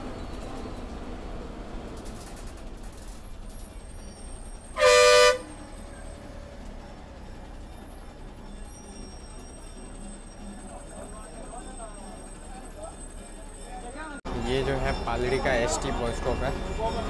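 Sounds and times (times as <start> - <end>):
moving bus noise: 0.0 - 17.0
vehicle horn blast: 4.8 - 5.6.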